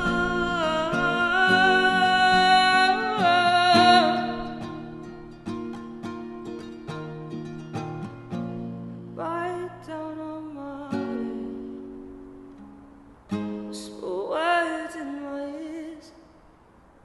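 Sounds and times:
person singing: 0:00.0 - 0:05.0, 0:09.2 - 0:11.8, 0:13.6 - 0:16.2
acoustic guitar strummed: 0:00.0 - 0:15.0.

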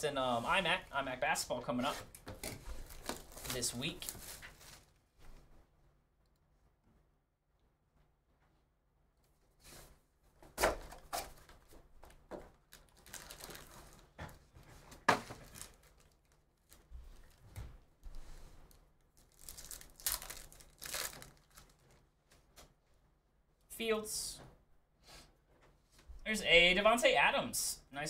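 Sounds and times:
foil packs crinkling: 0:02.4 - 0:05.0, 0:12.6 - 0:14.2, 0:15.3 - 0:17.4, 0:18.7 - 0:22.0
foil packs ripping open: 0:02.8 - 0:04.9, 0:12.7 - 0:14.1, 0:15.3 - 0:16.7, 0:19.2 - 0:21.8.

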